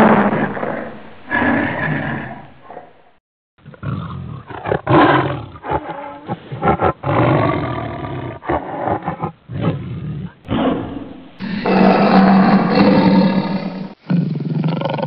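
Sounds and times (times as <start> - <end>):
tiger roaring: 0.0 - 2.9, 3.6 - 15.0.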